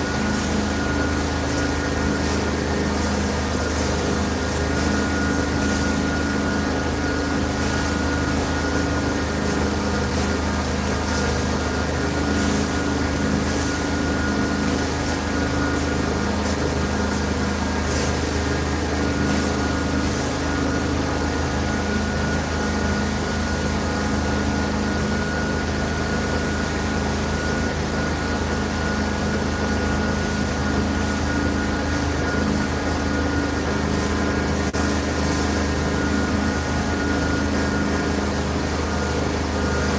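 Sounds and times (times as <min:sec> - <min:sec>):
carpet cleaning machine droning: 0:00.0 - 0:39.9.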